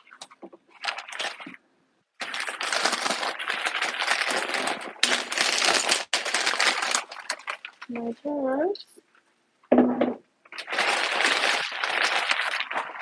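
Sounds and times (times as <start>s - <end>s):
plastic bag crinkling: 0.0s - 1.6s, 2.2s - 8.2s, 10.5s - 13.0s.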